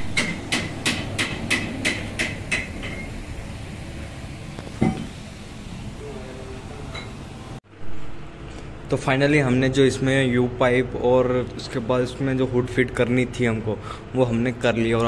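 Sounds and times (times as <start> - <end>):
hammer striking metal: 0.0 - 3.2.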